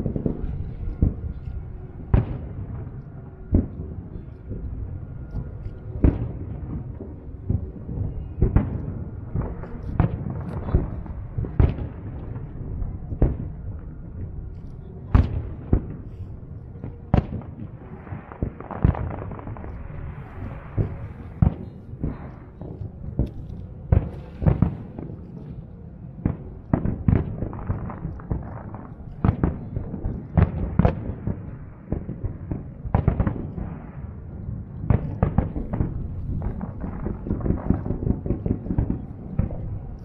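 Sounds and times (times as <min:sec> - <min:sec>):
low rumble: 0:00.0 - 0:40.0
firework shells booming: 0:34.8 - 0:39.9.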